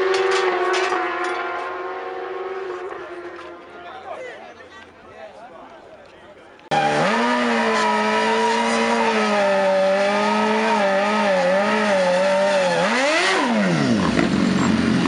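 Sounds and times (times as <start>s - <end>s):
motorcycle engine revving high: 0.0s - 3.6s, 6.7s - 15.0s.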